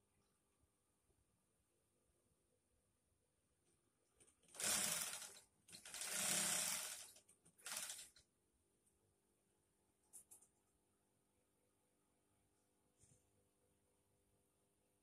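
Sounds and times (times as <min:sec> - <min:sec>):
sewing machine stitching: 0:04.2 - 0:08.2.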